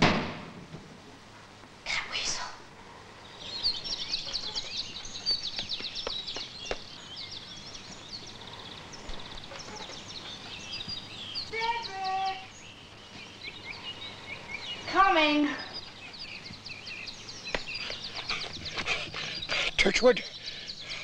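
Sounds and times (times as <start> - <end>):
songbirds chirping and trilling: 0.0 - 21.0.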